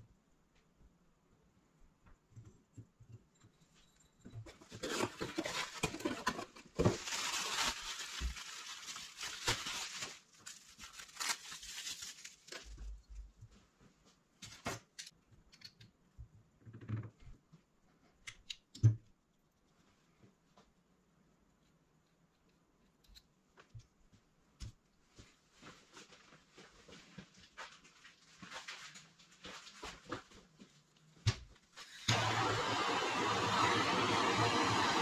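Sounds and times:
cardboard box rustling and scraping: 4.5 - 7.3.

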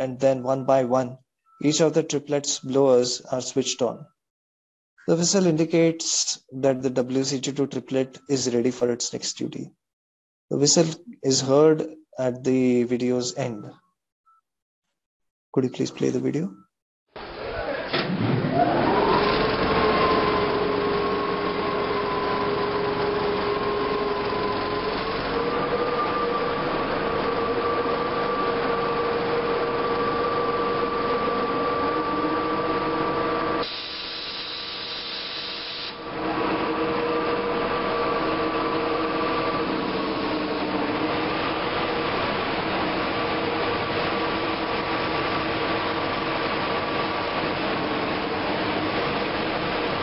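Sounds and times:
locomotive blowers whining: 17.4 - 34.8, 35.9 - 50.0.

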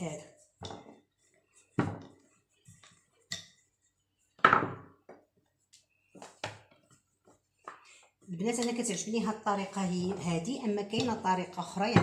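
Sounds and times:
knocks and thuds on tabletop: 1.8 - 2.1, 4.4 - 5.2.

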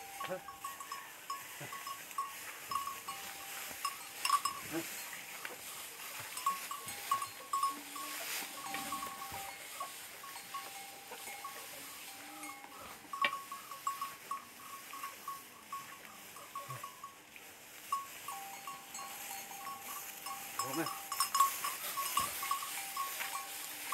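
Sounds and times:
small bells clinking: 0.0 - 23.9.

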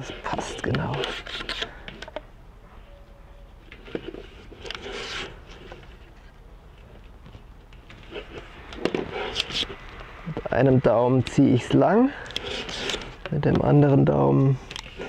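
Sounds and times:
tape rustling: 0.0 - 2.2, 3.6 - 10.2, 12.2 - 13.4
tape peeling off a roll: 3.8 - 10.6, 12.2 - 13.3.

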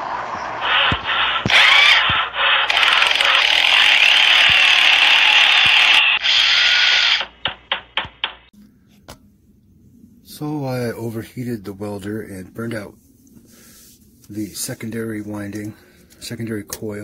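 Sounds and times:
loud mechanical whirring: 0.6 - 7.4.

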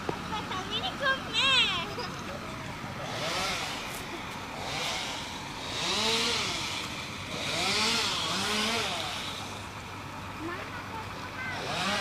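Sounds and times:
chainsaw revving cutting wood: 3.0 - 9.9, 11.5 - 12.0.

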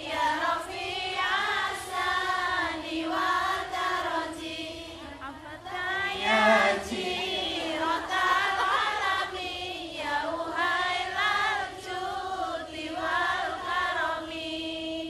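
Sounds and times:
man singing devotional song: 6.1 - 7.8.

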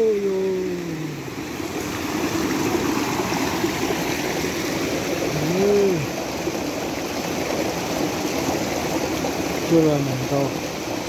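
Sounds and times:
person vocal sound: 0.0 - 1.3, 5.3 - 6.1
stream running water: 0.0 - 11.0.

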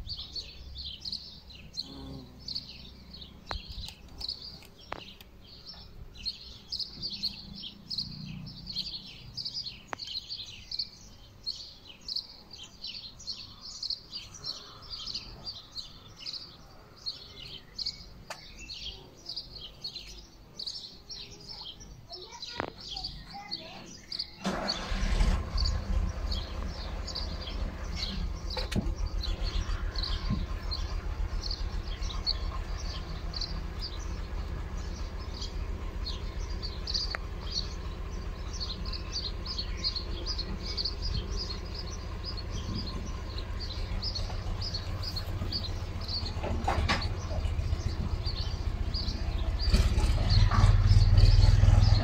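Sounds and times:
small birds chirping: 0.0 - 52.0
steady low rumble: 25.4 - 52.0.

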